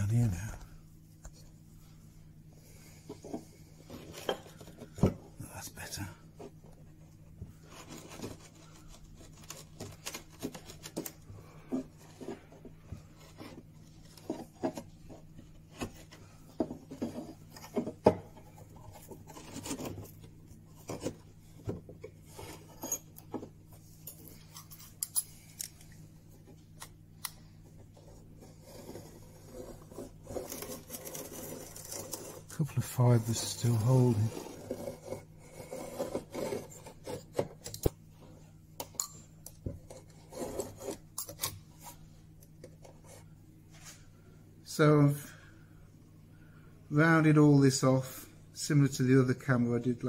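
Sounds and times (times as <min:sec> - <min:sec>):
chisel scraping wood: 0:28.4 - 0:32.6, 0:33.6 - 0:37.5, 0:39.9 - 0:41.1.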